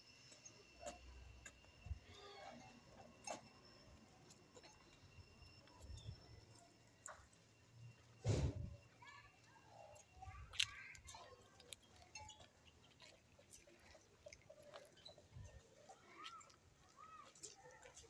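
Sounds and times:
faint animal calls: 2.0 - 2.8
thump on microphone: 8.2 - 8.7.

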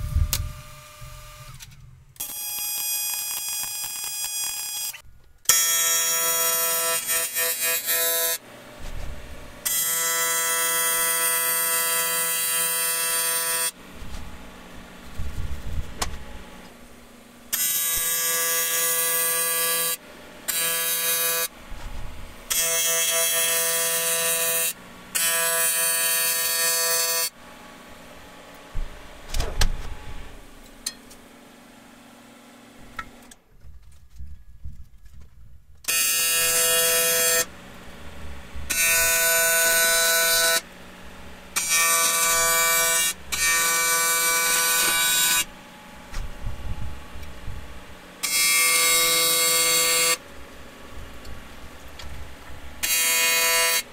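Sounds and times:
welding arc buzzing: 0.0 - 31.0, 35.8 - 53.9
clunk: 28.8 - 30.1.

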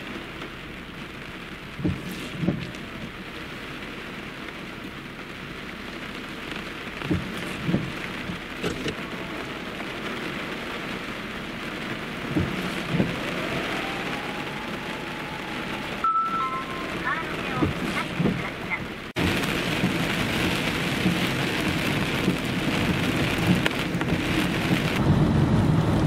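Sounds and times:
heavy rain on road: 0.0 - 26.0
short low thumps: 12.2 - 13.6.

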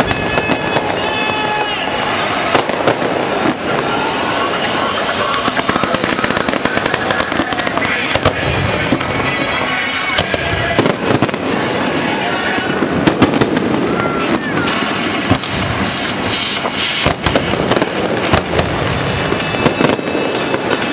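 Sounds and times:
fireworks bangs and crackles: 0.0 - 20.9
pop music with singing: 3.7 - 12.9.

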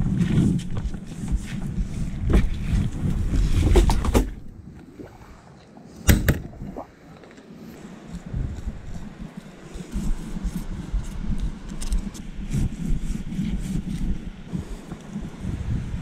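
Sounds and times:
camera handling rumble: 6.1 - 14.2.

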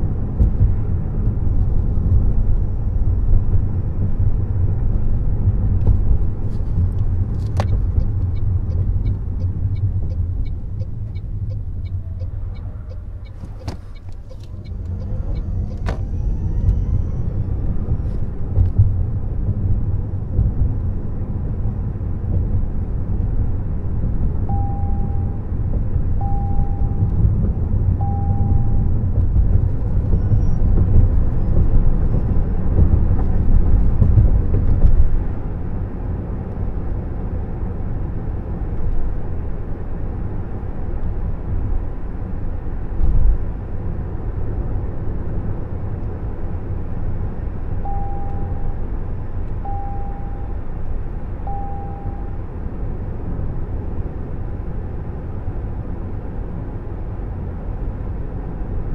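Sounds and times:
road and tyre rumble: 0.0 - 58.9
car warning chime: 24.5 - 25.4, 26.2 - 27.2, 28.0 - 28.9, 47.8 - 48.8, 49.6 - 50.6, 51.4 - 52.4.

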